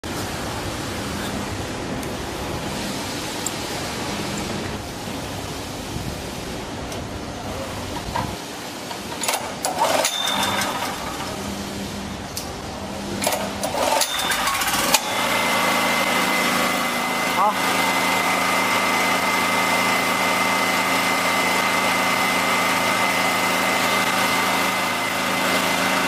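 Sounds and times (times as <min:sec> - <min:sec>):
generator engine running: 0:01.6 - 0:26.0
recoil cord pull rattle: 0:09.0 - 0:11.4, 0:13.2 - 0:15.3.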